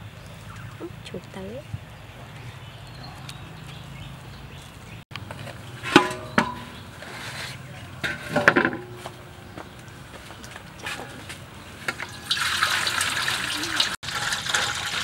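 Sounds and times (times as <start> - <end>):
metal basin clanking: 5.3 - 9.8, 10.4 - 15.0.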